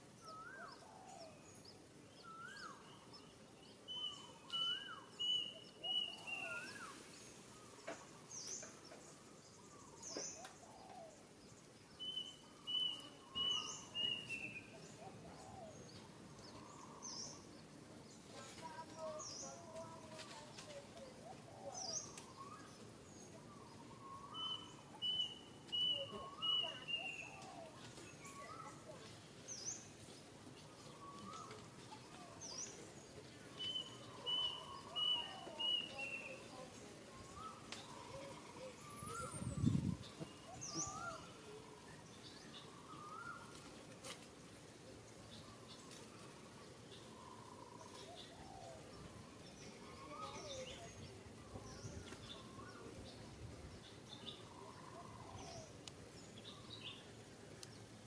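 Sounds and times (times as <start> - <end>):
birds chirping: 0.0 - 58.0
birds warbling: 12.2 - 17.6, 30.6 - 43.6, 53.9 - 55.8.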